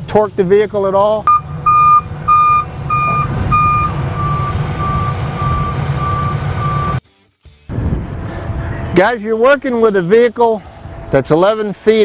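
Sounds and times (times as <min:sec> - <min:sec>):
diesel engine rumble: 0:00.0 - 0:07.0, 0:07.7 - 0:12.0
warning alarm beeping: 0:01.2 - 0:07.0.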